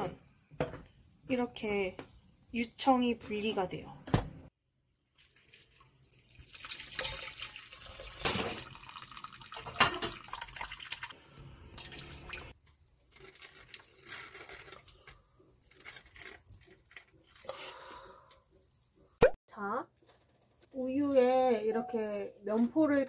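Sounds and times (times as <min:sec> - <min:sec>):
water splashing and dripping into sink: 0:05.0 - 0:14.0
liquid pouring into cloth: 0:05.1 - 0:11.2.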